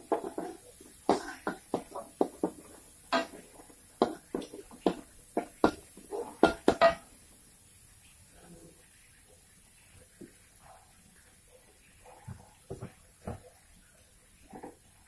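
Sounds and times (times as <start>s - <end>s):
metal spatula scraping a wok: 0.0s - 7.0s.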